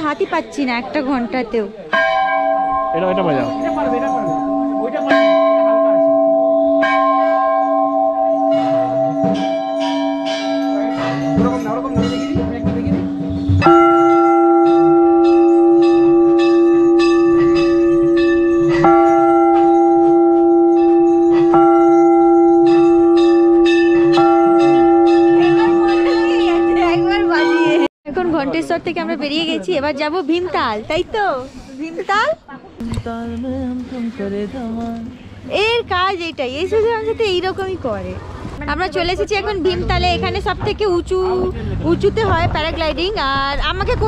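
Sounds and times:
temple bells ringing: 1.9s - 27.9s
louder higher-pitched bell: 2.0s - 27.9s.

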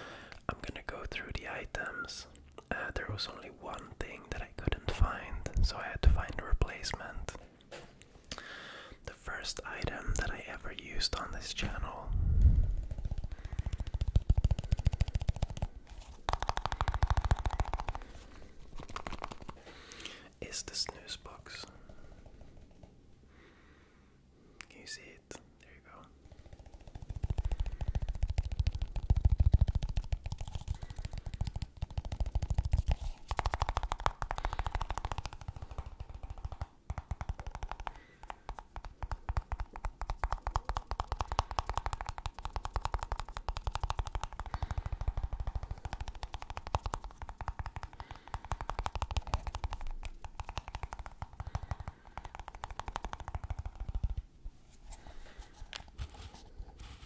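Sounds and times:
fast tapping on a small box: 12.6s - 19.7s, 26.2s - 54.3s.

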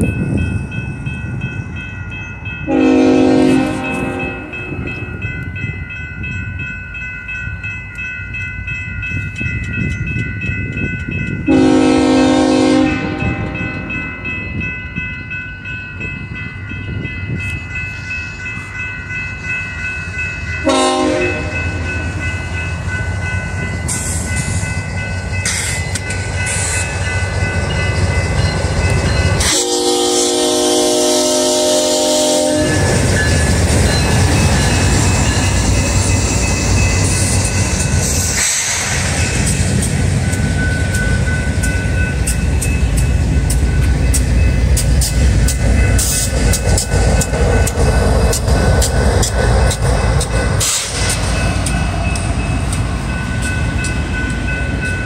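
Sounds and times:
bell ringing: 0.0s - 55.0s
train air horn: 2.7s - 4.6s, 11.5s - 13.8s, 20.6s - 21.9s, 29.4s - 33.0s
diesel locomotive rumble: 7.9s - 55.0s.

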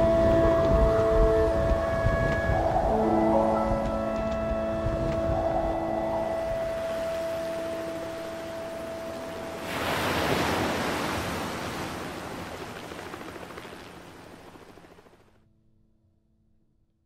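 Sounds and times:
loud rushing splash: 7.5s - 14.5s.

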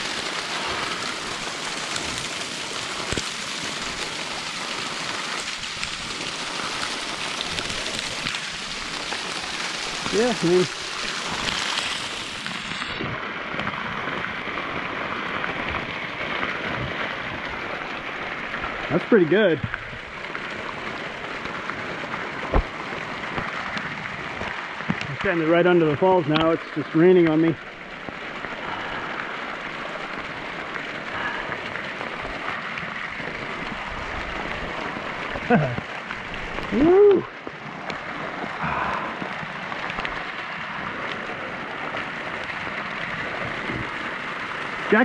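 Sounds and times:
water splashing on jacket sleeve: 0.0s - 25.4s, 33.3s - 42.5s
small waterfall rushing: 0.0s - 45.0s.

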